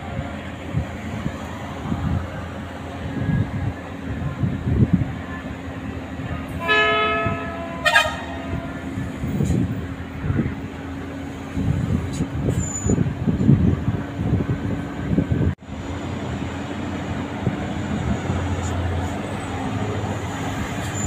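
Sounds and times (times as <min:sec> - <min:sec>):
engine drone: 0:00.0 - 0:21.0
wind on microphone: 0:00.0 - 0:21.0
truck horn: 0:06.6 - 0:09.6.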